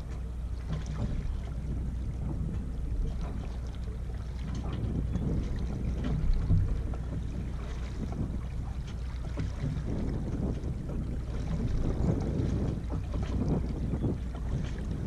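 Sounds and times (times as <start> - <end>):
water swishing along hull: 0.0 - 15.0
wind rumbling on microphone: 0.0 - 15.0.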